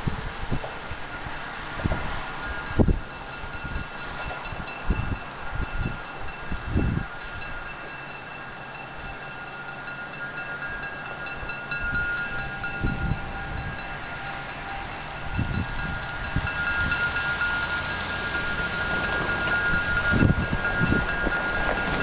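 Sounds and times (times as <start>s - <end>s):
wind gusts on microphone: 0.0s - 7.8s, 10.5s - 22.0s
locomotive bell ringing: 0.8s - 22.0s.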